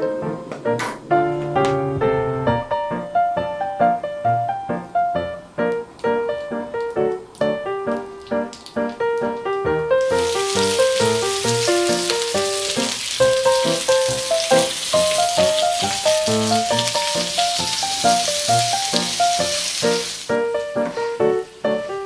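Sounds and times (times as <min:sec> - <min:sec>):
piano music: 0:00.0 - 0:22.0
sausages sizzling in frying pan: 0:10.0 - 0:22.0.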